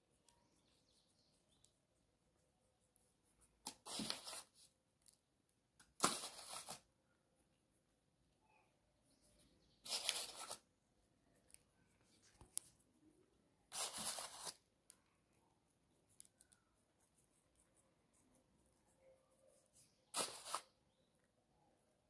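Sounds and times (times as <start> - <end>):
bag of seeds rustling: 9.8 - 10.6.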